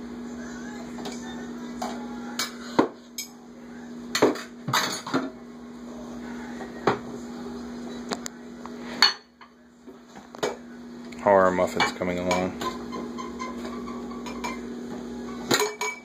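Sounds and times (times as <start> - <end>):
dishes clinking in a metal sink: 4.1 - 5.4, 9.0 - 9.6, 11.6 - 14.7, 15.3 - 16.0.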